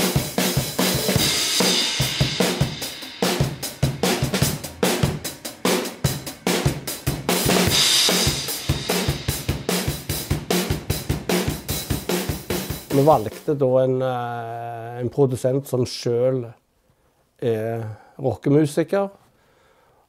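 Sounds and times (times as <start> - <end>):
cymbal crashes: 0.0 - 10.8
rock drum kit beat: 0.0 - 13.6.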